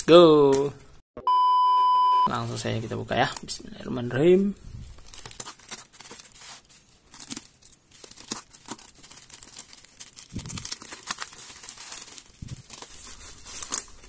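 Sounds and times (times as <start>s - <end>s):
bubble wrap crinkling: 4.8s - 14.0s.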